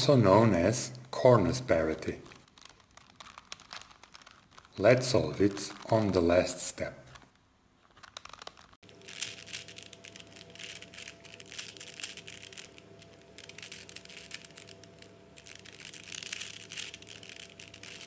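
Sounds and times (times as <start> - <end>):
faint steady hum: 0.0 - 18.0
puzzle cube plastic clicking: 2.0 - 4.8, 7.9 - 18.0.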